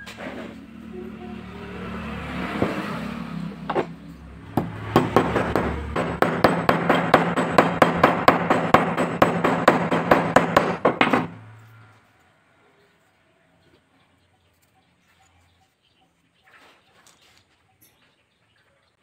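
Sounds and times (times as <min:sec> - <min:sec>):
hammer tapping on metal: 0:03.7 - 0:11.4.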